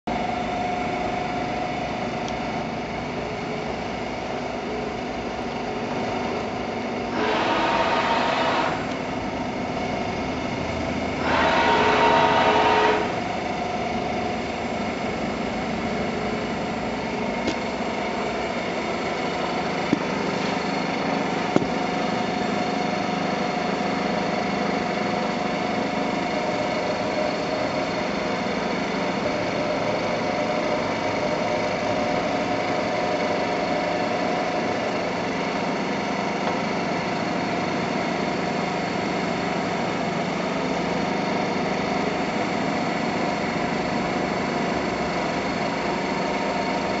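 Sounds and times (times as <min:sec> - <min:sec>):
milling machine humming: 0:00.1 - 0:47.0.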